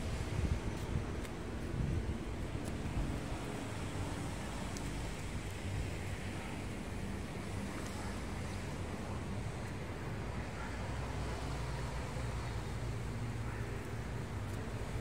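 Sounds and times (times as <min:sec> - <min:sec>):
wind on microphone: 0:00.0 - 0:06.0.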